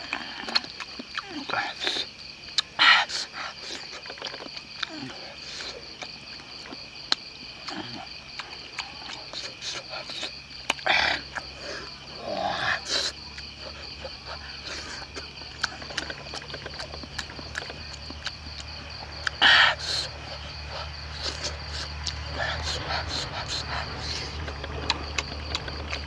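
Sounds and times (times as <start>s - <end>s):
wet eating smacks: 0.0s - 2.0s, 12.8s - 26.0s
night insects droning: 0.0s - 26.0s.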